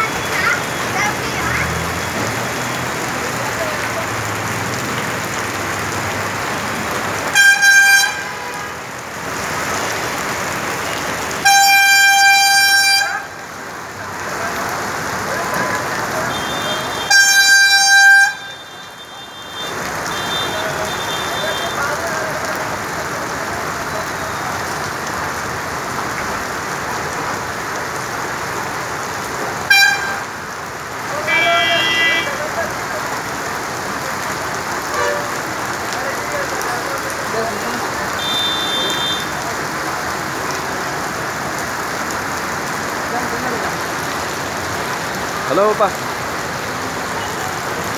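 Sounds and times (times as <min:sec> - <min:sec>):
heavy rain: 0:00.0 - 0:47.9
rushing floodwater: 0:00.0 - 0:47.9
vehicle horn: 0:07.3 - 0:08.8, 0:11.4 - 0:13.2, 0:16.3 - 0:21.8, 0:29.7 - 0:30.3, 0:31.2 - 0:32.4, 0:34.9 - 0:35.4, 0:38.2 - 0:39.3.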